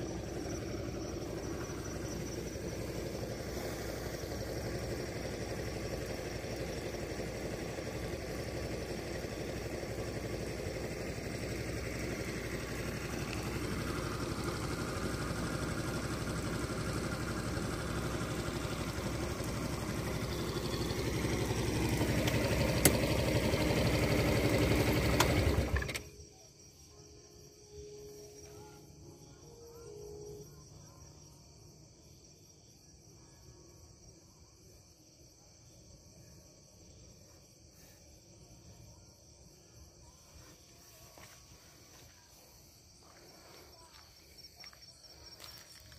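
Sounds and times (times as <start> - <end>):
motor scooter engine idling: 0.0 - 26.9, 37.8 - 45.9.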